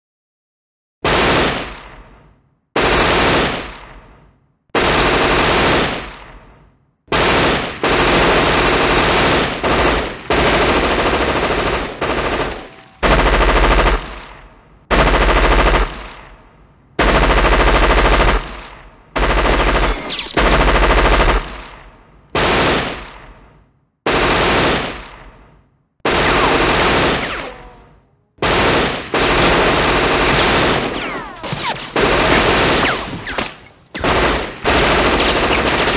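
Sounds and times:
machine-gun bursts: 7.1s - 16.2s, 17.0s - 21.8s, 26.1s - 35.9s.

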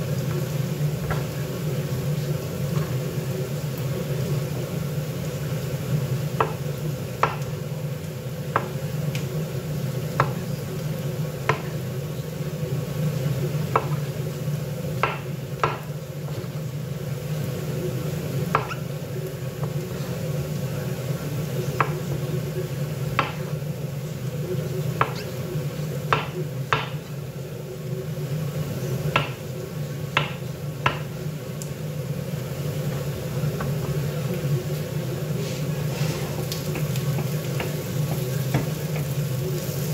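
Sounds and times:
knife tapping cutting board: 6.4s - 6.6s, 7.2s - 7.5s, 8.5s - 8.8s, 10.2s - 10.4s, 13.7s - 14.0s, 15.0s - 15.9s, 18.5s - 18.8s, 23.2s - 23.5s, 25.0s - 25.3s, 26.1s - 27.1s, 30.2s - 31.1s.

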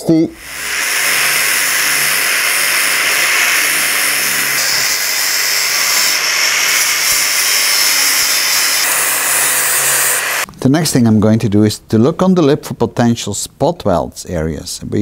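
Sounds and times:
angle grinder grinding metal: 0.4s - 10.5s.

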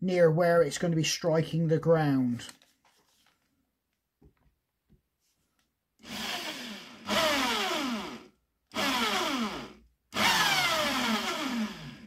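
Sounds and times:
electric hand drill boring into metal: 6.0s - 12.0s.

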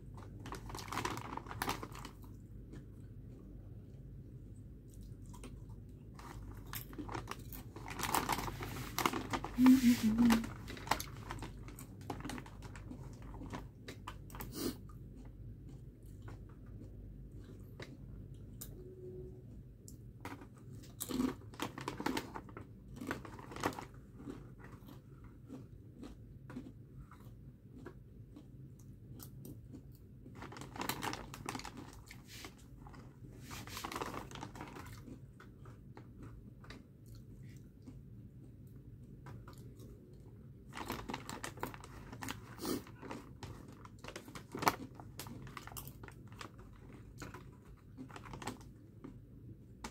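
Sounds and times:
chip bag rustling: 6.2s - 13.6s, 30.4s - 35.0s
chips crunching: 20.3s - 27.9s.

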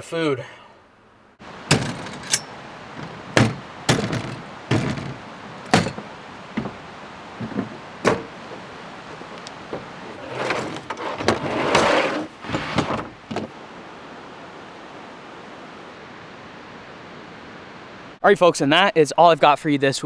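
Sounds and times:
river running: 0.0s - 20.0s
knocks: 3.0s - 6.8s, 7.4s - 8.6s
table scraping into compartment: 9.2s - 13.5s.

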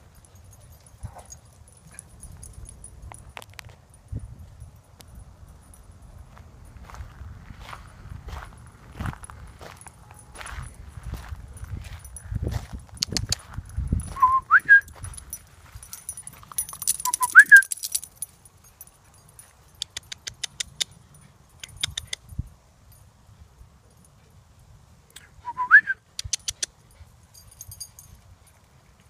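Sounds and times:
person whistling two-note whistles: 14.2s - 14.9s, 17.0s - 17.7s, 25.4s - 26.0s.

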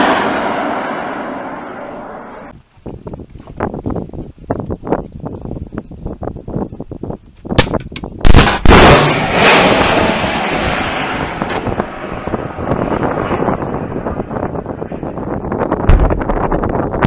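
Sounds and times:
missile launch bang: 0.0s - 2.5s, 8.2s - 15.0s, 15.9s - 16.5s
rocket motor blast: 0.0s - 2.5s, 8.2s - 16.8s
rushing rocket noise: 0.0s - 2.6s, 8.2s - 17.0s.

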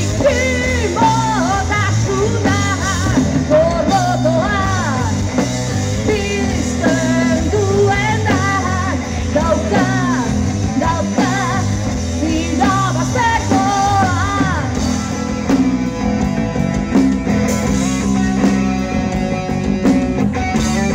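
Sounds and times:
woman singing lead vocal: 0.0s - 15.0s
distorted electric guitar: 0.0s - 20.9s
drum kit: 0.0s - 20.9s.

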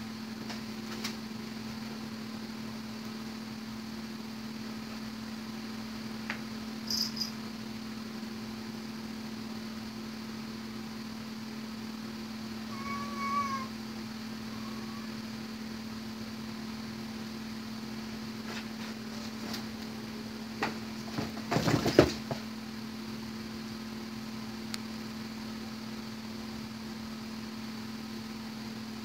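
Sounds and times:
steady low hum: 0.0s - 29.0s
cat meowing: 12.7s - 13.8s, 14.5s - 15.2s.

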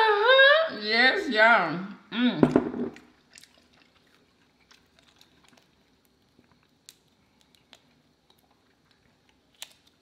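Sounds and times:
prawn shells cracking: 4.7s - 10.0s.

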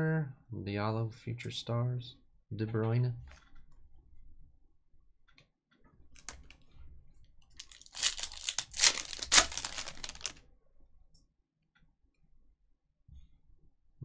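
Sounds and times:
foil wrapper tearing and crinkling: 7.6s - 10.4s.

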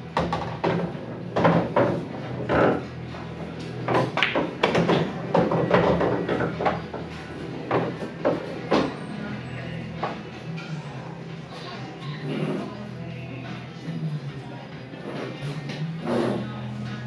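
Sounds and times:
pool balls and cue clacking: 0.0s - 10.9s, 14.9s - 17.0s.

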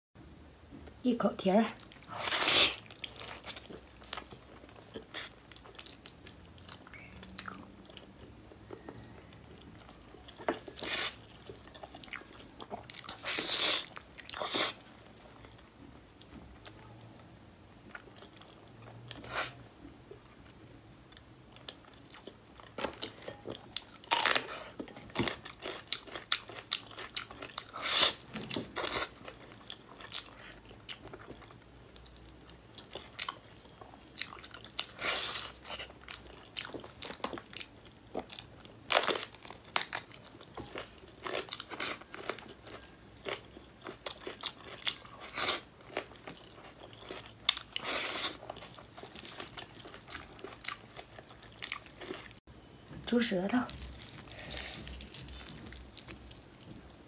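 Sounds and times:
biting and chewing meat: 21.6s - 52.4s, 53.7s - 57.0s.

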